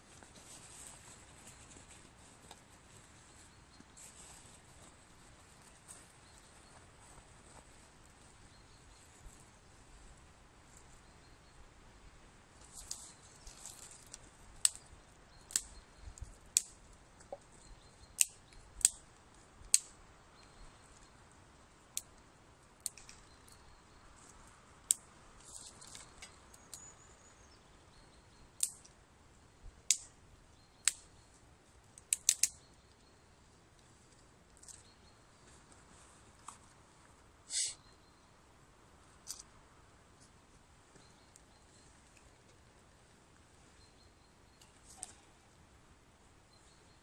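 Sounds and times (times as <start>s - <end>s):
leaves rustling: 0.0s - 10.3s, 12.6s - 14.9s.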